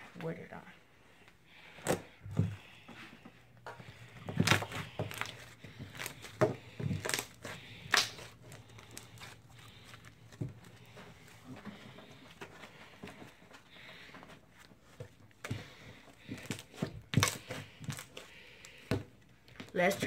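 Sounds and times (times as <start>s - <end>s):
slime crackling and popping: 4.3s - 10.7s.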